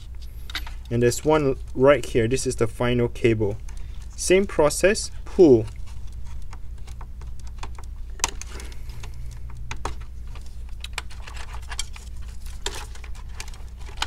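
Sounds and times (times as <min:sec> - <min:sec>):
steady low hum: 0:00.0 - 0:14.0
plastic connector clicks and scratches: 0:05.6 - 0:14.0.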